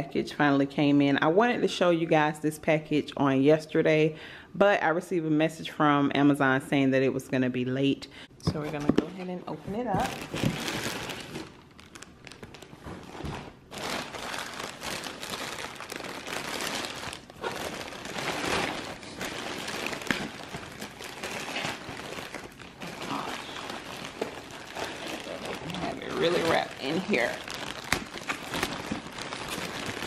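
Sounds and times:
plastic packaging crinkling: 0:09.8 - 0:30.0.

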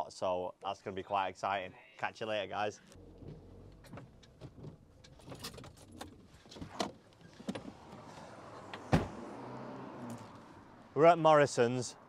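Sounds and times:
door clicks and rattles: 0:03.8 - 0:07.7
van door slamming shut: 0:08.8 - 0:09.2.

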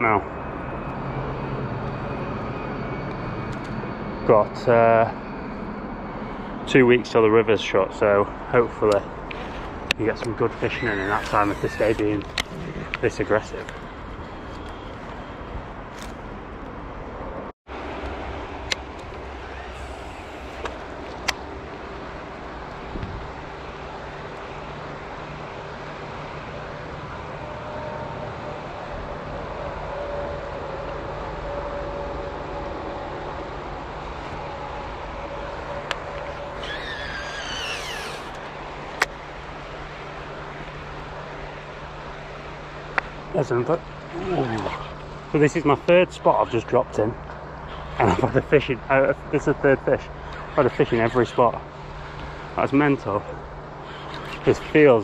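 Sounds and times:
outdoor background rumble: 0:00.0 - 0:55.0
fishing reel spool whining: 0:08.8 - 0:15.3, 0:18.6 - 0:24.0, 0:35.2 - 0:41.4, 0:43.6 - 0:55.0.

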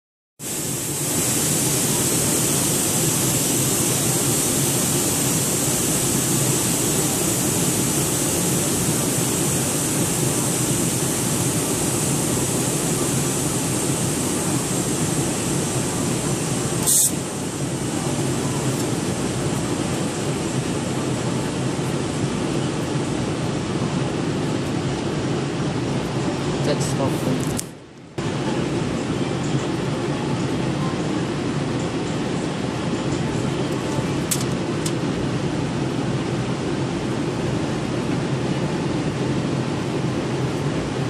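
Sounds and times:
brief sharp hiss: 0:00.4 - 0:17.3
high hiss: 0:00.4 - 0:23.7.

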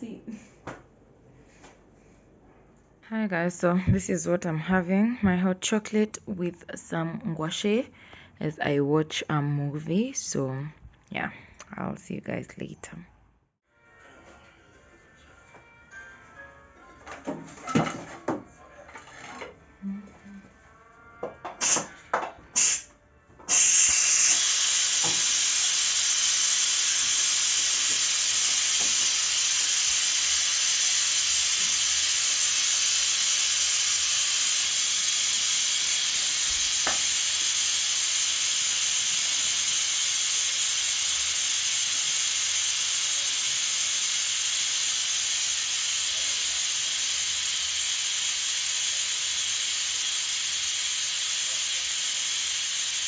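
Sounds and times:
pressure cooker hissing steam: 0:21.6 - 0:22.0, 0:22.6 - 0:22.9, 0:23.5 - 0:53.0.

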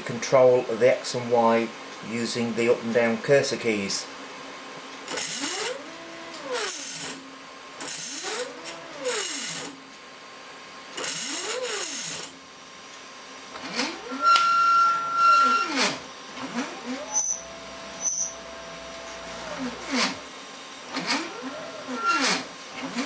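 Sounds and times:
printer carriage motor whine: 0:05.1 - 0:09.9, 0:10.9 - 0:12.5, 0:13.5 - 0:23.0
thin steady whistle: 0:14.1 - 0:15.8, 0:17.1 - 0:18.6.

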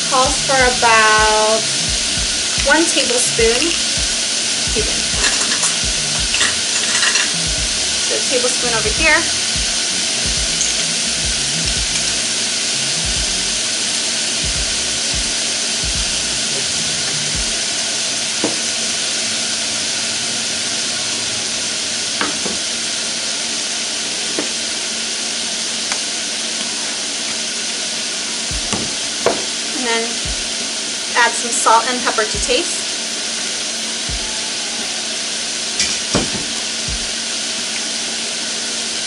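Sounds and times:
onions sizzling in oil: 0:00.0 - 0:39.0
dull knocks: 0:28.5 - 0:29.5.

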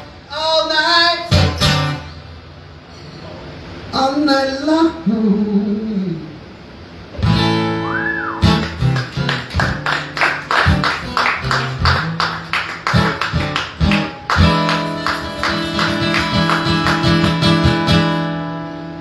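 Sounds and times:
acoustic guitar strumming: 0:01.0 - 0:02.4, 0:07.2 - 0:19.0.

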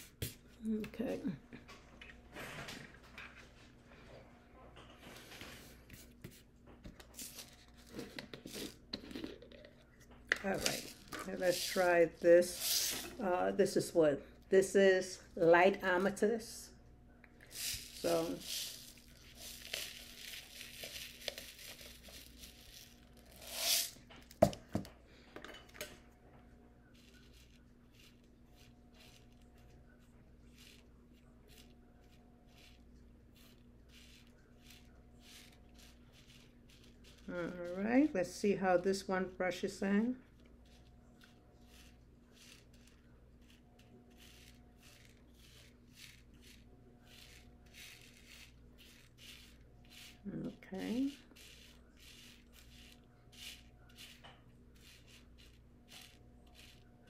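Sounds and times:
rhinestones rattling in plastic bag: 0:10.4 - 0:13.3, 0:17.5 - 0:24.0, 0:41.6 - 0:56.9
rhinestones pouring out: 0:17.5 - 0:24.0.

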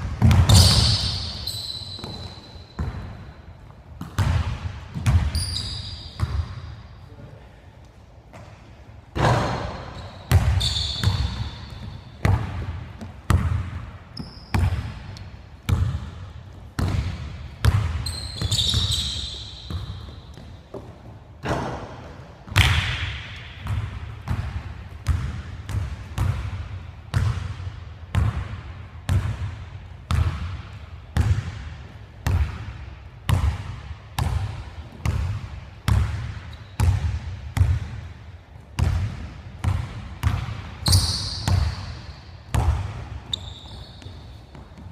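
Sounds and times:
basketball bouncing on wooden floor: 0:00.0 - 0:03.2, 0:04.0 - 0:06.6, 0:09.2 - 0:15.1, 0:15.7 - 0:29.5, 0:30.1 - 0:32.7, 0:38.8 - 0:44.9
sneakers squeaking on floor: 0:00.1 - 0:07.1, 0:08.3 - 0:22.8, 0:35.9 - 0:37.7, 0:38.8 - 0:44.9.

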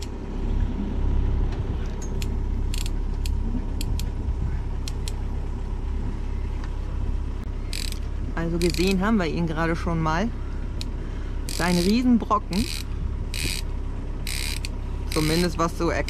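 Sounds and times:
wind noise on microphone: 0:00.4 - 0:05.1
fishing reel clicking and rattling: 0:02.2 - 0:04.0, 0:07.7 - 0:08.0, 0:08.6 - 0:09.0, 0:11.5 - 0:16.0.

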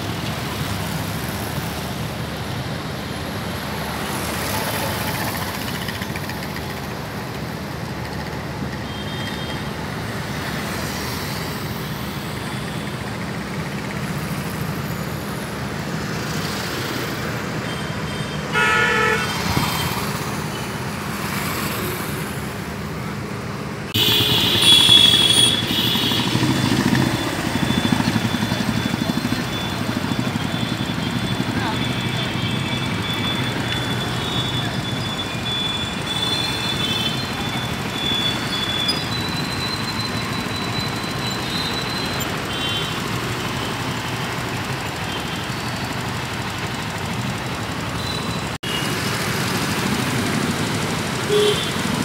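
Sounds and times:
cars and motorcycles passing: 0:00.0 - 0:08.9, 0:09.5 - 0:52.0
vehicle horn honking: 0:18.5 - 0:19.5, 0:23.9 - 0:26.4, 0:51.3 - 0:51.9.

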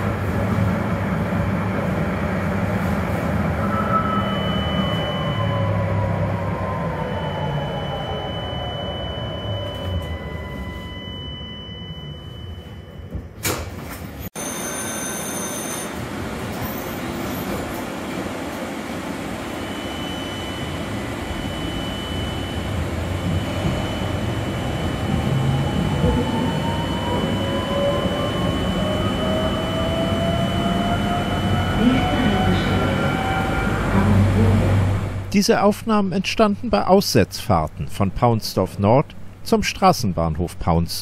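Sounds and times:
tram rumbling and rattling: 0:00.0 - 0:08.8, 0:15.9 - 0:20.0, 0:20.8 - 0:35.3
rising tram whine: 0:00.0 - 0:35.4.

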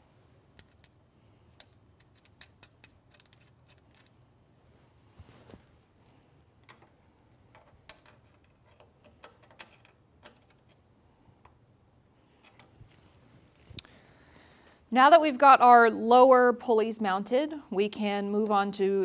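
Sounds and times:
wrench clicking on metal: 0:00.6 - 0:04.1.

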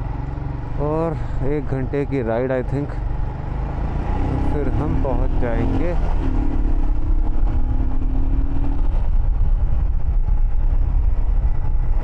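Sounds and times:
motorcycle engine humming: 0:00.0 - 0:12.0
wind rumble on microphone: 0:05.2 - 0:12.0.

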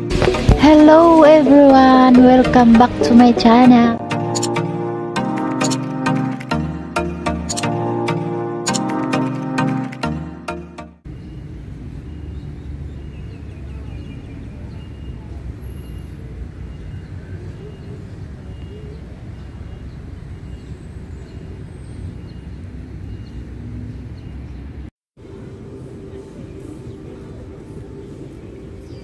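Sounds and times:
intro music: 0:00.0 - 0:11.0
faint high chirp: 0:13.9 - 0:21.5.

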